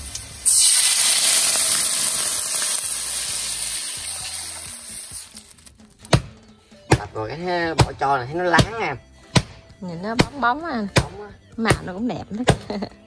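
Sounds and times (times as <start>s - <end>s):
water hissing in hot pan: 0.0s - 5.7s.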